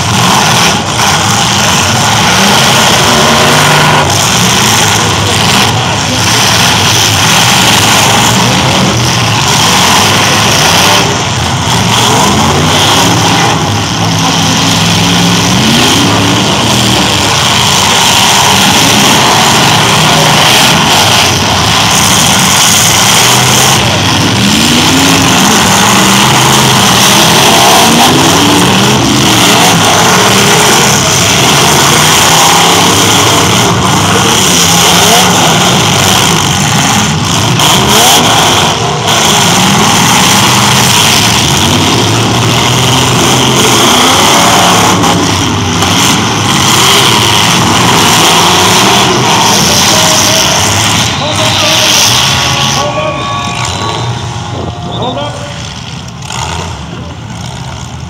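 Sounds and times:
truck engines revving: 0.0 - 58.0.

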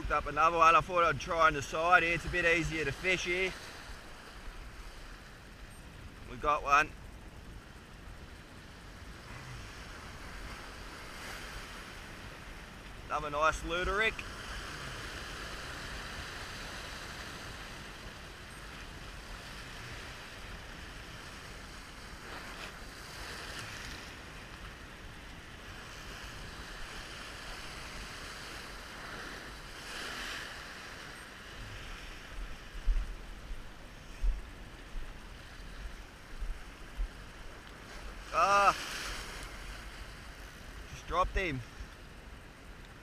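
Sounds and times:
surf washing over rocks: 0.0 - 43.0
wind thumps on microphone: 31.6 - 37.3.

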